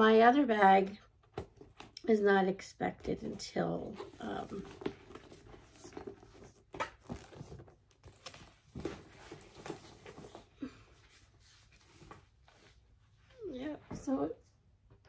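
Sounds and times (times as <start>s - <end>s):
strap rustling: 4.0s - 12.8s.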